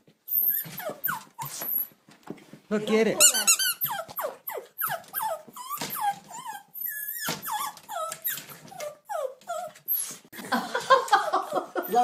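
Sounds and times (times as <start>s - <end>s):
small dog yipping and whining: 0.2s - 2.0s, 3.2s - 10.3s.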